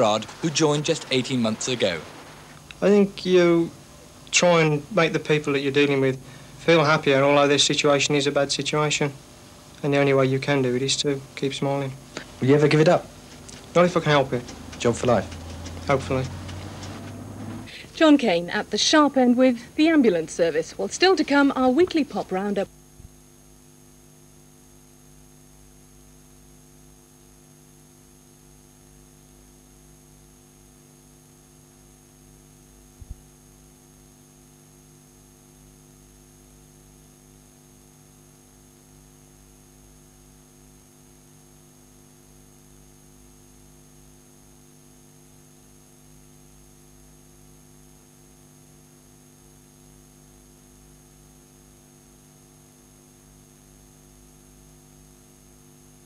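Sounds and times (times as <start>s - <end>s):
faint tape hiss: 0.0s - 24.0s
electrical mains hum: 0.0s - 56.0s.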